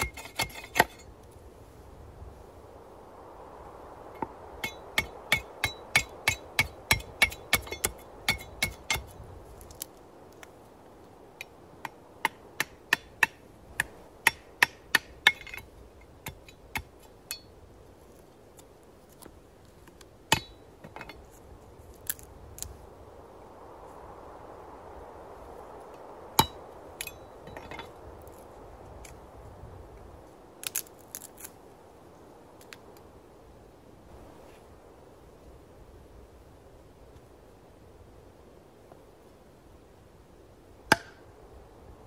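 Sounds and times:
machete chopping wood: 40.9s - 41.2s.

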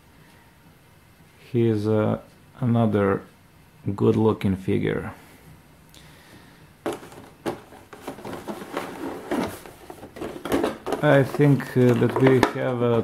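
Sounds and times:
plastic tray clicks and rustles: 6.9s - 13.0s.

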